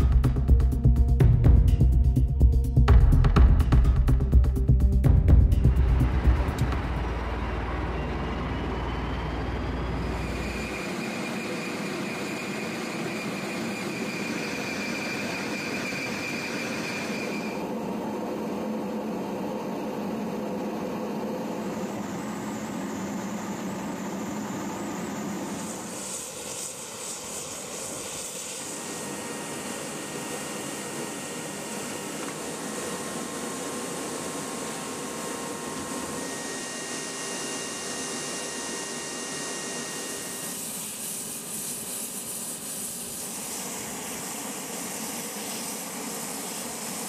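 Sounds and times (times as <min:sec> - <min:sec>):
deep rumble: 0:00.0 - 0:10.1
aircraft engine drone: 0:00.0 - 0:47.0
high whine: 0:00.0 - 0:47.0.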